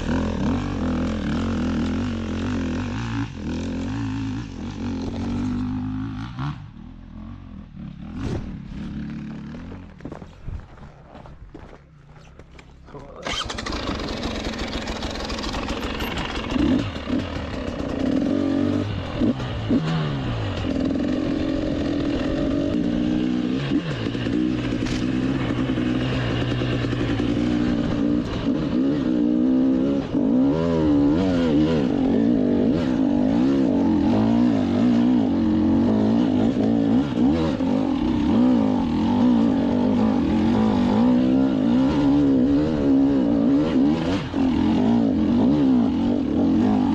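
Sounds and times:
motorcycle engine revving: 0:00.0 - 0:10.2, 0:12.6 - 0:46.9
knocks from rocky ground: 0:09.6 - 0:12.9.

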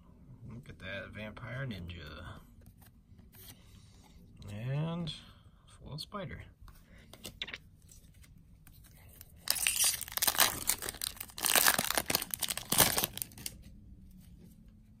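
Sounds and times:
foil wrapper tearing and crinkling: 0:09.4 - 0:13.6.

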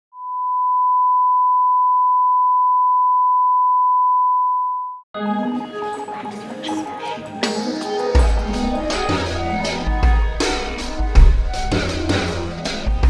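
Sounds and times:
sine test tone beep: 0:00.1 - 0:05.0
music: 0:05.1 - 0:13.0.

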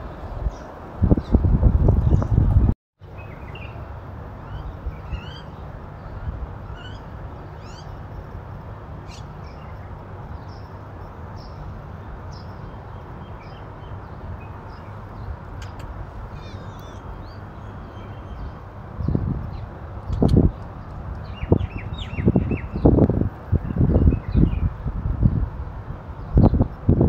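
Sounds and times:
wind on microphone: 0:00.0 - 0:02.8, 0:14.0 - 0:27.0
birds chirping: 0:00.1 - 0:25.5.

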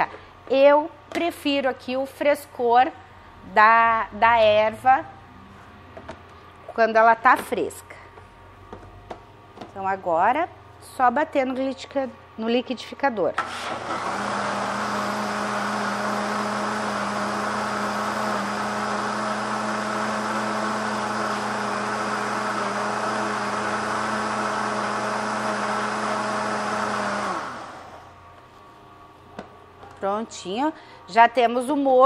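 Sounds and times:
blender motor running: 0:13.4 - 0:28.2.

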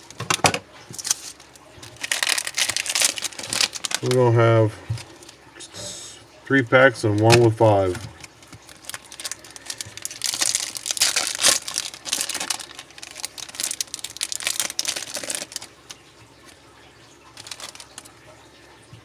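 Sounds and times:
foil wrapper crinkling and tearing: 0:00.9 - 0:05.4, 0:07.1 - 0:16.6, 0:17.3 - 0:18.1.

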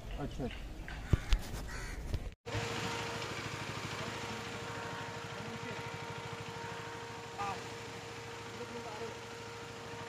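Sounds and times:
motorcycle engine running: 0:02.5 - 0:10.0.

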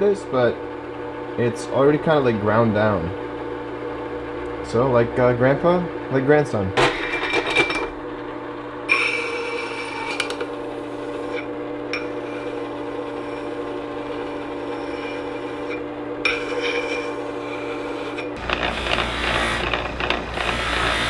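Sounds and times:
sharpening machine motor hum: 0:06.8 - 0:21.0
screwdriver tip grinding on disc: 0:08.9 - 0:21.0.

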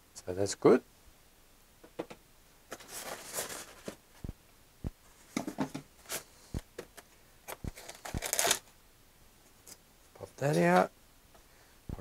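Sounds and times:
foam packaging rubbing: 0:02.7 - 0:04.0, 0:07.6 - 0:08.6.

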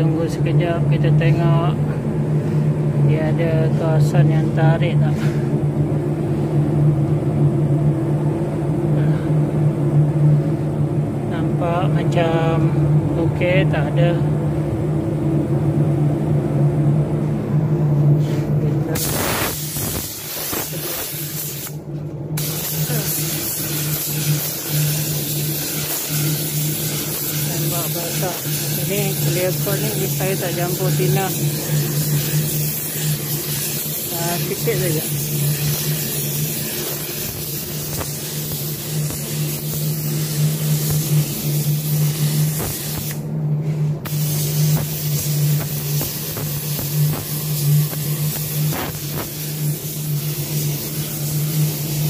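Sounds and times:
steady low hum: 0:00.0 - 0:52.0
paint spray gun hissing: 0:19.0 - 0:21.8, 0:22.4 - 0:43.2, 0:44.1 - 0:52.0.

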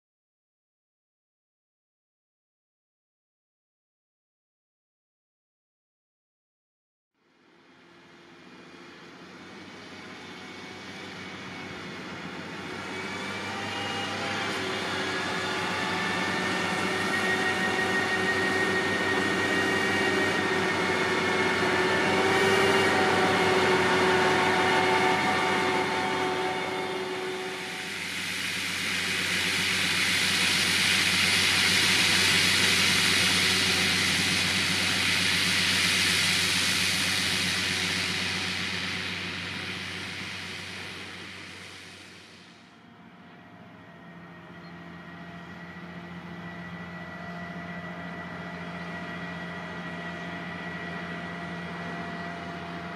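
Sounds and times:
engine with whining tones: 0:07.2 - 0:52.9
low hum: 0:08.4 - 0:52.9
broad hiss: 0:24.2 - 0:42.7.

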